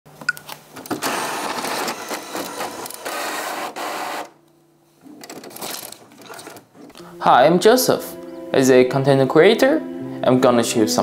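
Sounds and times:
printer running: 0.9s - 4.4s.

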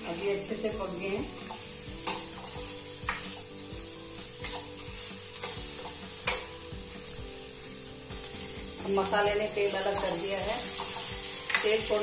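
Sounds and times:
steady oil sizzle: 0.0s - 12.0s
spoon stirring and scraping pan: 0.4s - 12.0s.

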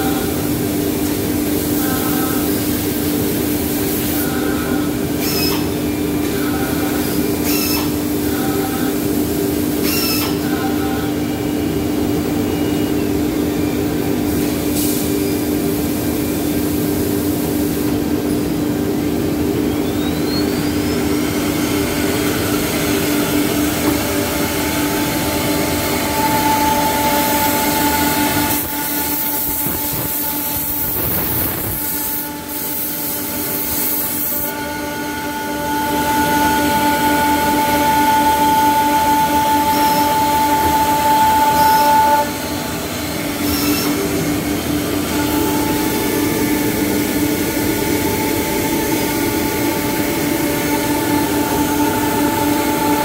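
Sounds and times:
machine mechanical hum: 0.0s - 53.0s
rising whine: 19.6s - 32.6s, 34.1s - 53.0s.

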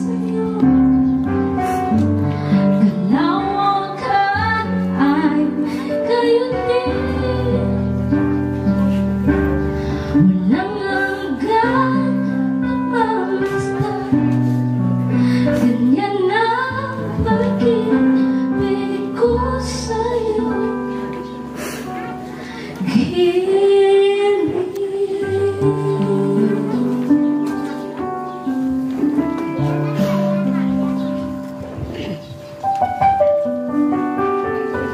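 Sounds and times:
woman singing: 0.0s - 1.3s, 2.6s - 8.0s, 10.2s - 14.5s, 15.3s - 21.3s, 22.5s - 27.5s.

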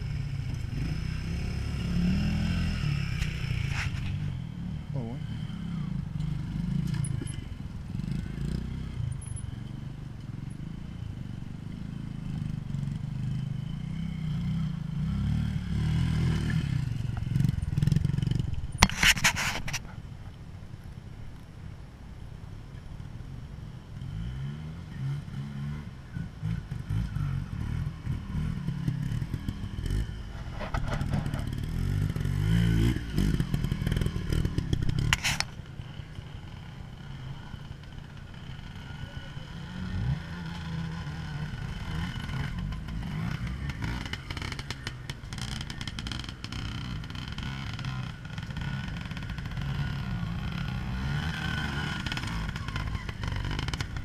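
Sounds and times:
motorcycle engine revving: 0.0s - 19.9s, 24.0s - 54.0s
sharp click: 35.1s - 35.5s.

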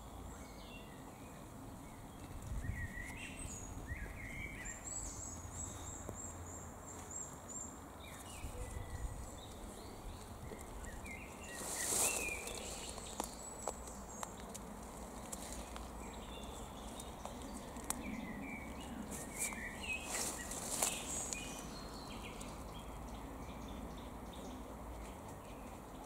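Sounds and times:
steady background hiss: 0.0s - 26.0s
leaves rustling when handled: 8.2s - 18.0s, 19.0s - 22.6s.

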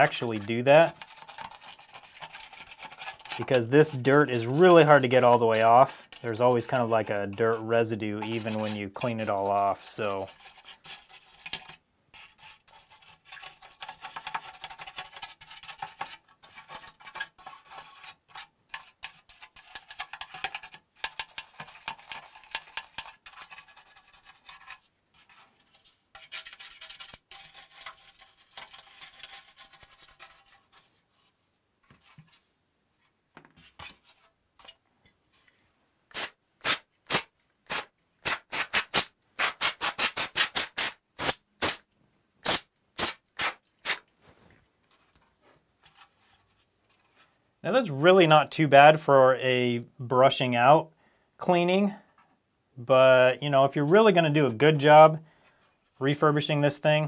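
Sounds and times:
bristle brush scrubbing plastic: 0.0s - 32.4s.

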